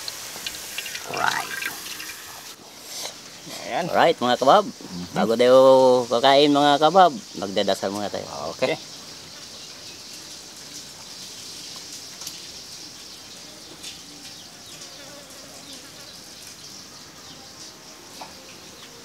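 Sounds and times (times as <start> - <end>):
insect chorus buzzing: 0.0 - 19.0.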